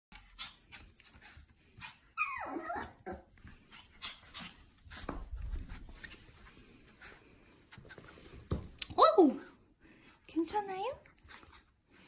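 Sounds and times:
puppy whining: 2.1s - 3.4s.

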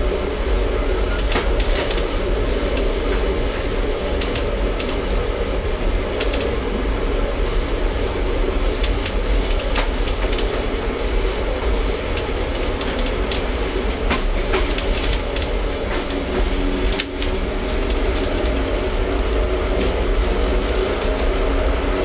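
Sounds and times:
tram rumbling on rails: 0.0s - 22.0s
rail joint clicks and knocks: 0.4s - 22.0s
high-pitched wheel squeals: 2.9s - 4.0s.

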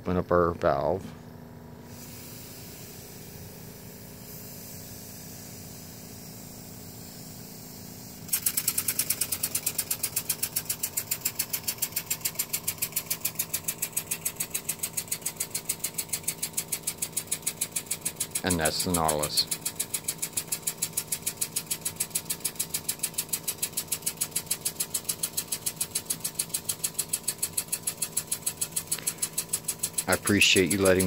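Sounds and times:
low mechanical hum: 0.0s - 31.0s
rapid puffs of hissing air: 1.8s - 14.7s.

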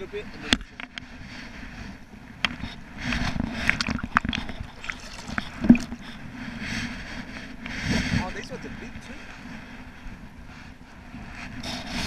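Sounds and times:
water sloshing and splashing: 3.5s - 6.2s.

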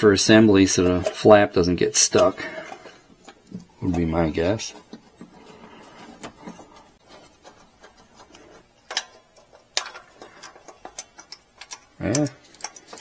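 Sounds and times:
small metal parts clicking: 8.9s - 13.0s.

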